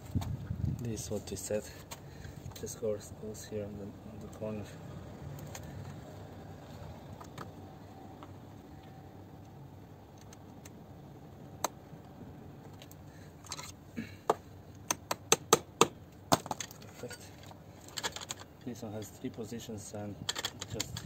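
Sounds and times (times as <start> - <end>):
plastic parts rustling and rubbing: 12.7 - 13.8, 16.3 - 19.2, 20.2 - 21.0.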